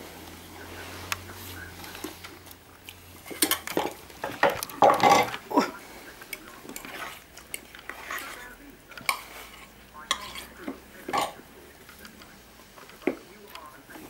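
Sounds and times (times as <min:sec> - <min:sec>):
metal bowl scraping on wooden floor: 0:06.7 - 0:11.4.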